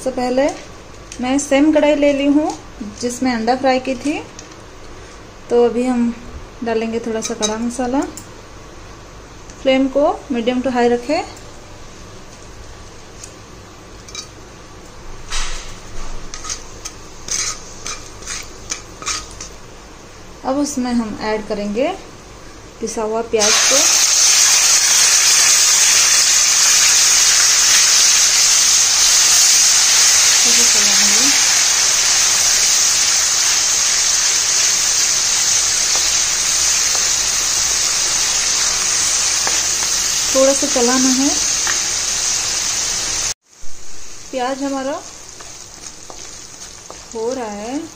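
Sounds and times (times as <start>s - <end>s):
paste sizzling in hot oil: 16.3s - 19.4s, 23.4s - 43.4s, 44.1s - 47.9s.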